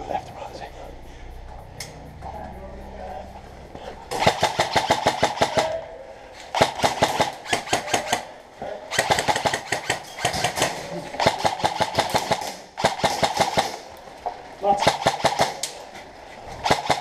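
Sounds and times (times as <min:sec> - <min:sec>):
airsoft gun firing on full auto: 0:04.2 - 0:05.8, 0:06.5 - 0:08.3, 0:08.9 - 0:13.8, 0:14.8 - 0:15.6, 0:16.6 - 0:17.0.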